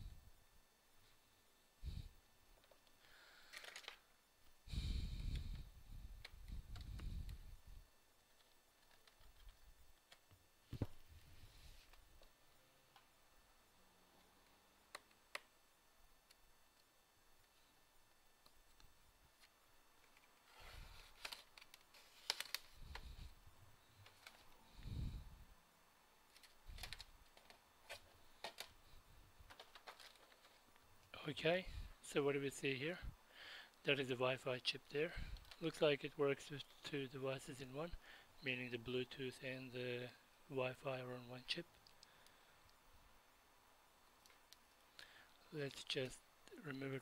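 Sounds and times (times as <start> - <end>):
quiet handling of laptop: 5.2 - 13.1, 26.3 - 30.9.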